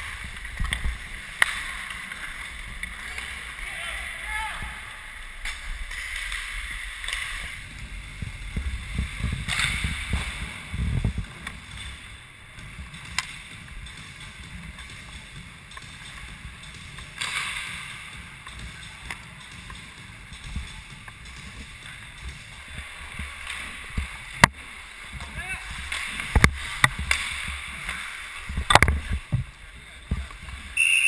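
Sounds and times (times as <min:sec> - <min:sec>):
skates scraping on ice: 0:00.0 - 0:30.8
wind rumble on microphone: 0:06.5 - 0:15.5, 0:20.0 - 0:30.8
microphone rubbing: 0:07.6 - 0:13.7.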